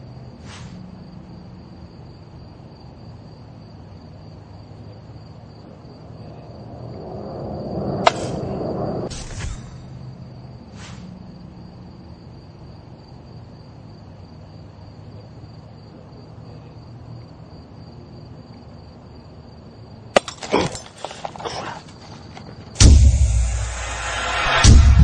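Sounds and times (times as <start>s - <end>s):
insects chirring: 0.0s - 24.6s.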